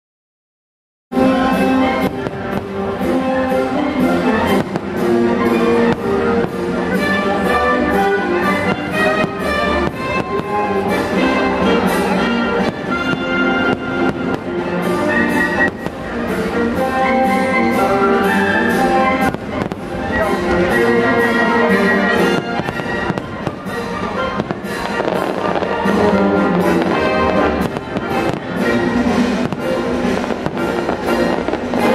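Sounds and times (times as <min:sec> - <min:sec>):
orchestral music: 0:01.1 - 0:31.9
firework bangs and pops: 0:02.0 - 0:03.0, 0:04.4 - 0:07.4, 0:08.6 - 0:16.5, 0:18.5 - 0:20.5, 0:22.2 - 0:31.9.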